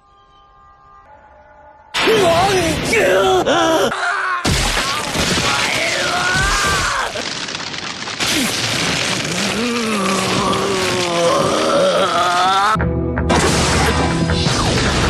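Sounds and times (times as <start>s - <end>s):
dramatic background music: 12.3s - 15.0s
impact and boom effects: 13.2s - 15.0s.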